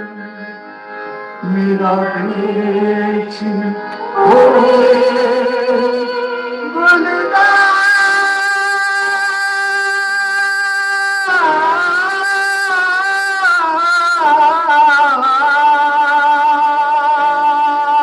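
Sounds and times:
harmonium: 0.0 - 18.0
singers singing: 1.4 - 8.4.

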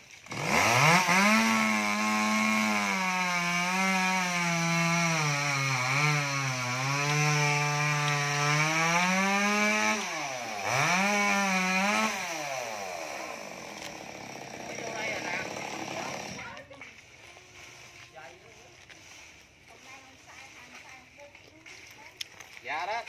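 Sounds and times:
chainsaw cutting wood: 0.0 - 17.0.

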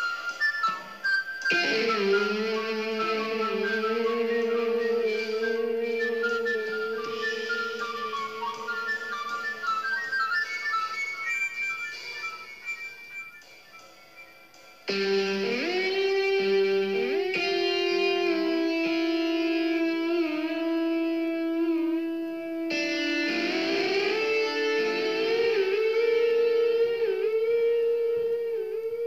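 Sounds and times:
instrumental music with bending lead: 0.0 - 29.0.

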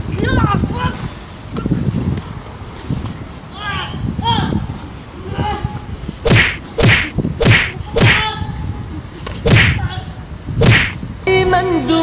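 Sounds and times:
whip cracks: 6.2 - 8.3, 9.4 - 9.9, 10.6 - 11.0.

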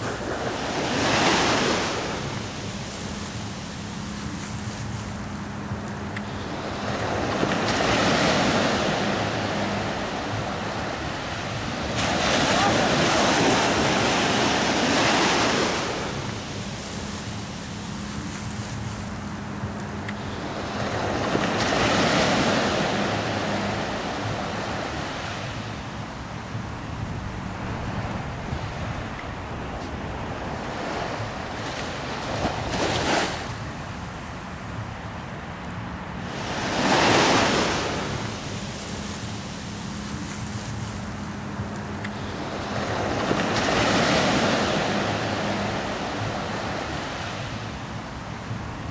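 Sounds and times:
sea wave washing up beach: 0.0 - 19.3
waves breaking on beach: 0.0 - 48.9
wind buffeting microphone: 26.5 - 33.8.

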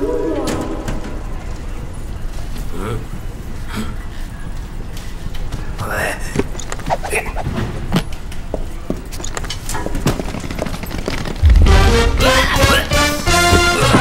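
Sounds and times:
short rising sound: 6.8 - 7.6
suitcases clicking and knocking: 8.0 - 11.6.

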